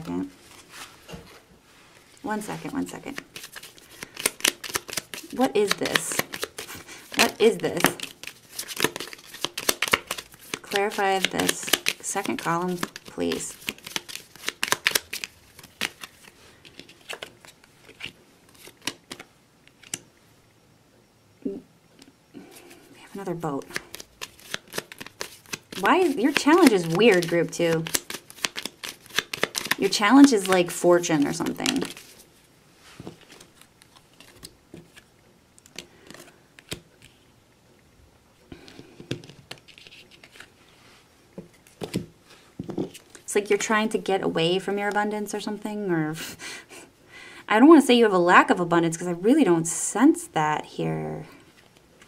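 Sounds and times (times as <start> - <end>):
cards being shuffled: 2.5 - 20.0, 22.6 - 32.3, 33.0 - 37.2, 38.6 - 40.6, 41.4 - 43.3.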